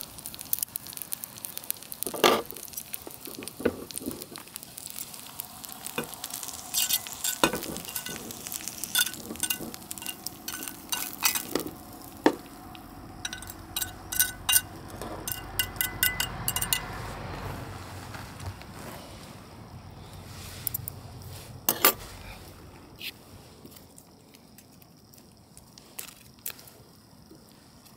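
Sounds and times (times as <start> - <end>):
food sizzling in a pan: 0.0 - 18.1
utensil scraping against pan: 6.0 - 11.8, 13.2 - 16.9.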